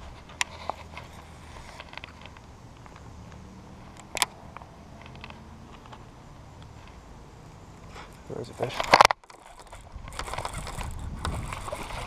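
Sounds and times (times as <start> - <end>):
fishing reel clicks: 8.6 - 12.0.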